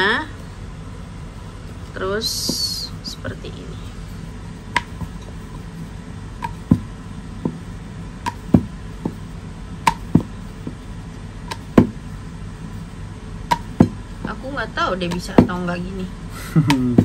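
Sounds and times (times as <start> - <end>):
wooden rolling pin knocking: 4.7 - 5.5, 6.4 - 9.2, 9.8 - 10.8, 11.4 - 12.1, 13.5 - 14.4, 15.0 - 15.7, 16.7 - 17.0.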